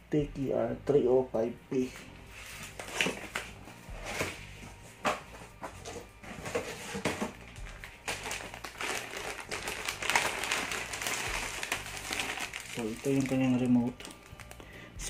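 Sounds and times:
plastic bags crinkling: 6.3s - 14.7s.

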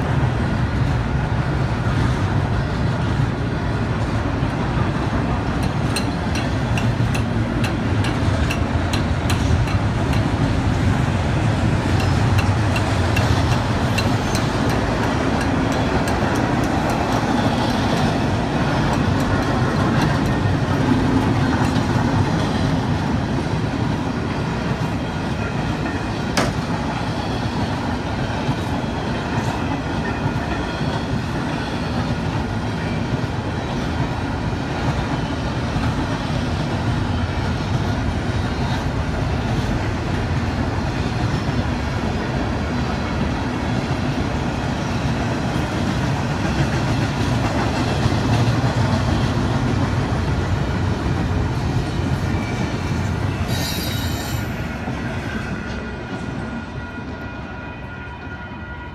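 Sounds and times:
train cars rumbling on rails: 0.0s - 58.9s
high wheel squeal: 52.3s - 54.6s.

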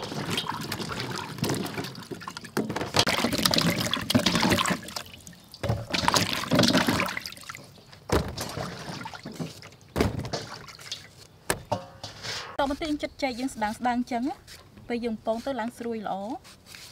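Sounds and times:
hands splashing in basin of water: 0.0s - 11.2s.

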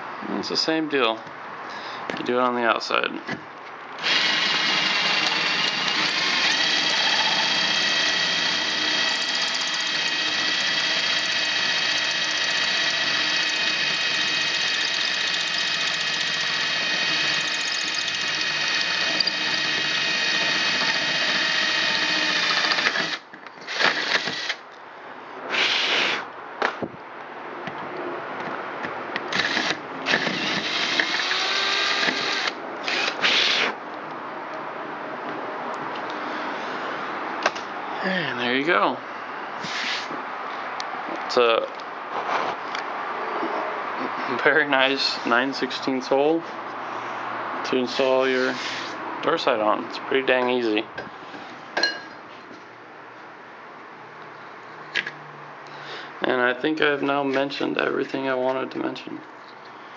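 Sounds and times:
electric drill cutting metal: 4.0s - 24.6s, 29.3s - 33.8s.

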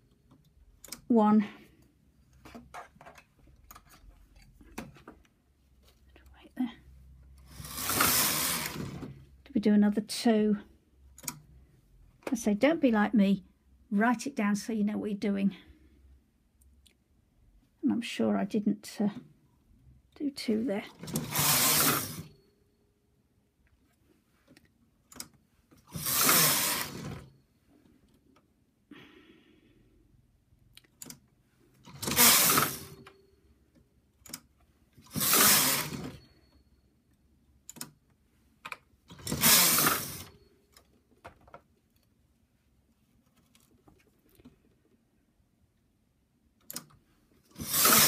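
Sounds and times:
knitting machine carriage rattling: 7.4s - 9.2s, 20.9s - 22.3s, 25.9s - 27.3s, 31.8s - 33.0s, 35.0s - 36.3s, 39.1s - 40.3s, 47.5s - 48.0s.

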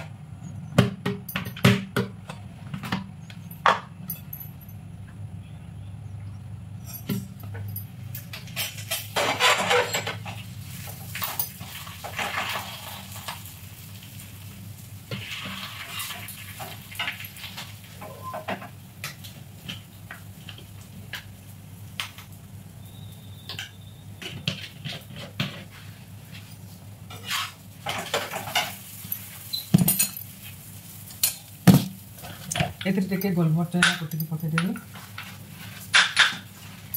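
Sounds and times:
metal spatula scraping iron pan: 8.4s - 10.4s, 27.1s - 28.8s.

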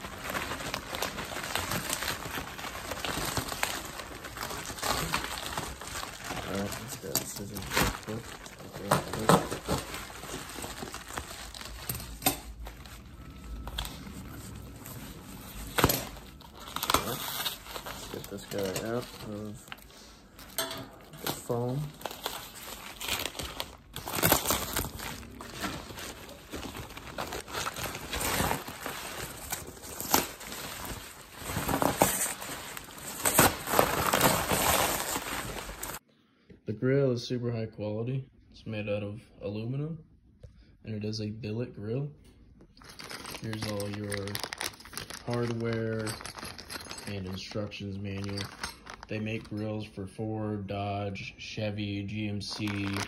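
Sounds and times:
packaging crinkling and rustling: 0.0s - 36.0s, 42.7s - 49.8s, 52.2s - 53.0s.

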